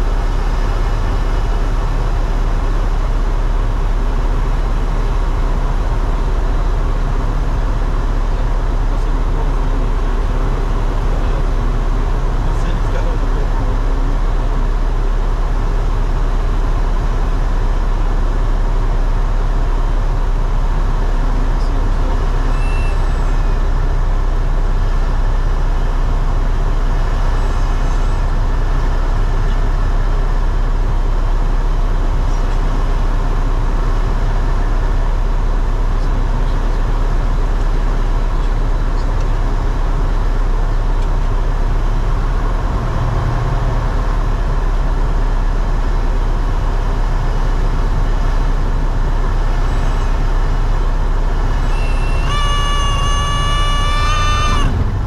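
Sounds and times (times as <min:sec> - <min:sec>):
light aircraft engine drone in cabin: 0:00.0 - 0:55.0.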